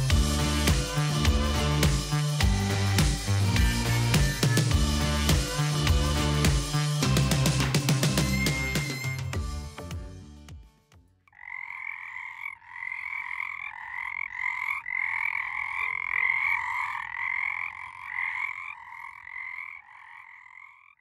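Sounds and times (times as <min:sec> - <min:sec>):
frogs croaking: 0:11.3 - 0:21.0.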